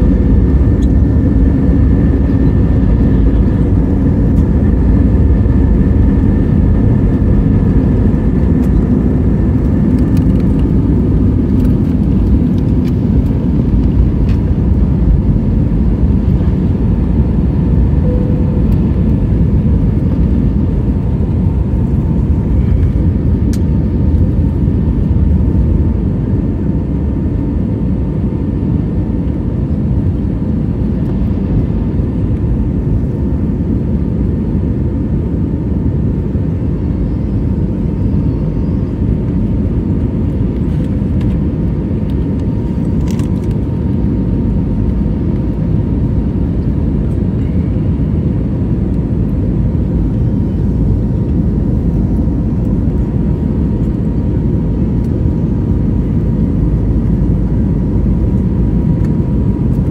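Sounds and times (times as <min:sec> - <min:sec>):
aircraft cabin engine rumble: 0:00.0 - 0:59.9
faint steady tone: 0:18.0 - 0:18.9.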